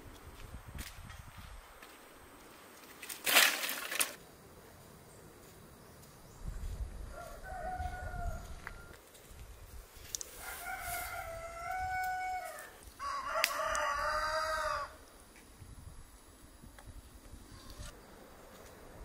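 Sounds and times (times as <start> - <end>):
rooster crowing: 7.1 - 9.0, 10.4 - 15.0.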